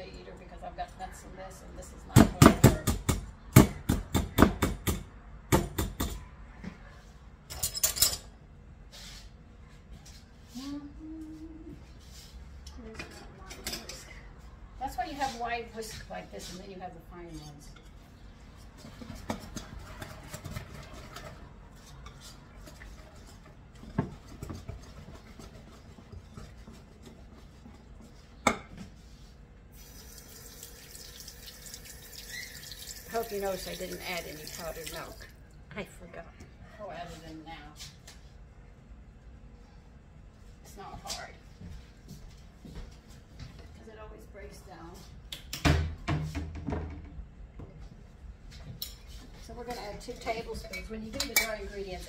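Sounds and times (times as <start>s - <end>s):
whisk scraping against bowl: 18.6s - 28.4s.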